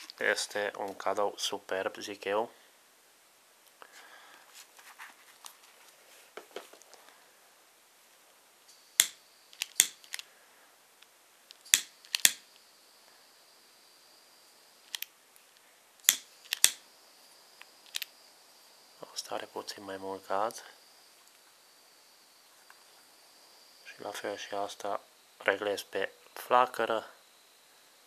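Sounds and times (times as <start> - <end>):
handling rustle: 4.4 - 7.2
torch igniter clicking: 9.0 - 10.2, 11.0 - 12.6, 16.0 - 16.8.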